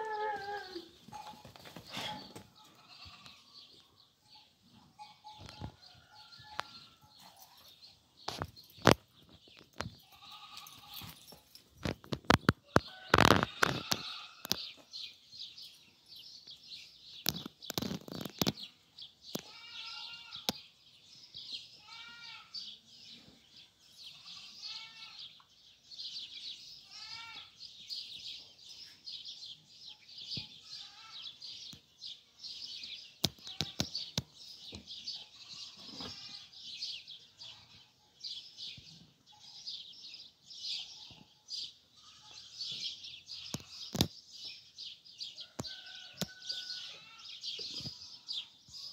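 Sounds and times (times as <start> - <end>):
small birds chirping and singing: 0.0 - 48.9.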